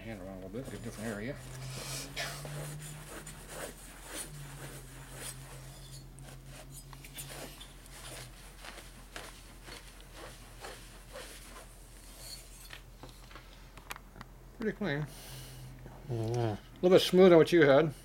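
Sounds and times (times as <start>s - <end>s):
cloth rubbing cylinder bore: 0.0s - 13.2s.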